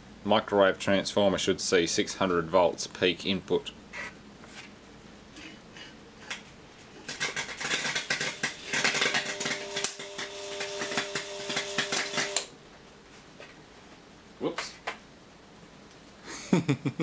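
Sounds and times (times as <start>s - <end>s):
high-voltage arc crackling: 7.0s - 12.5s
steady buzzing hum: 7.9s - 15.9s.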